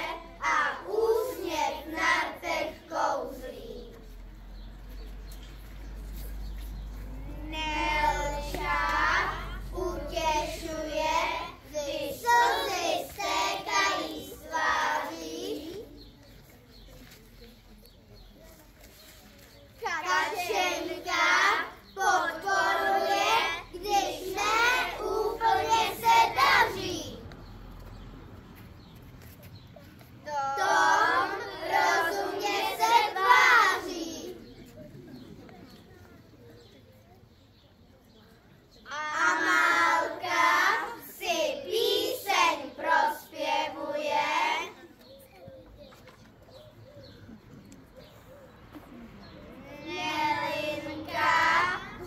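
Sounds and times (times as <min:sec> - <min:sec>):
child singing: 0:00.0 - 0:04.0, 0:07.1 - 0:15.9, 0:19.8 - 0:27.3, 0:30.3 - 0:34.5, 0:38.9 - 0:44.8, 0:49.6 - 0:52.0.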